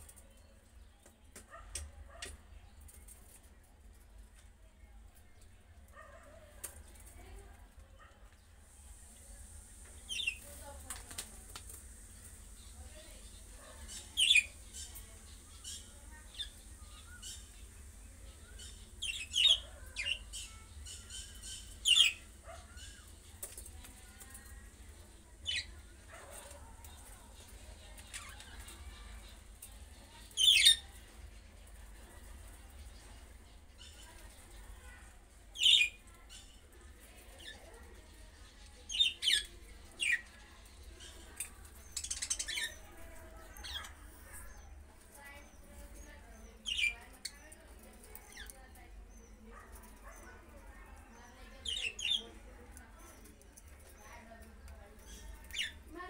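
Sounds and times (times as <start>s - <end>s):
budgerigars warbling chatter: 13.3s - 17.7s, 18.3s - 23.1s.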